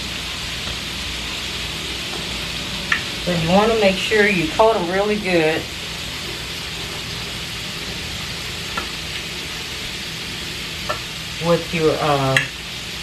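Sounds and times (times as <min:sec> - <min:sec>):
chicken frying in hot oil: 0:00.0 - 0:13.0.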